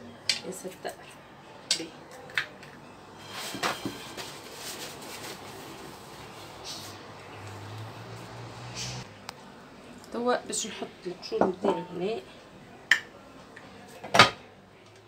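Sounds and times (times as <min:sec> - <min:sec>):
paper towel rustling: 0:03.2 - 0:07.0.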